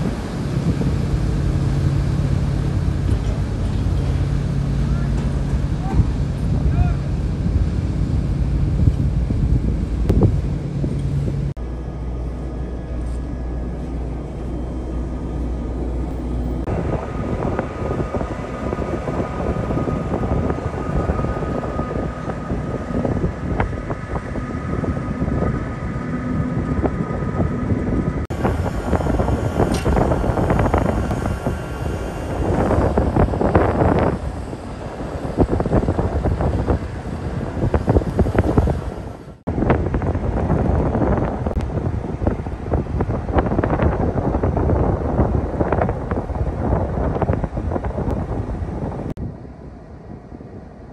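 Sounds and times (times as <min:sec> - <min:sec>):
ship machinery hum: 0:00.0 - 0:50.9
wind buffeting microphone: 0:00.0 - 0:50.9
faint steady tones: 0:11.6 - 0:39.4.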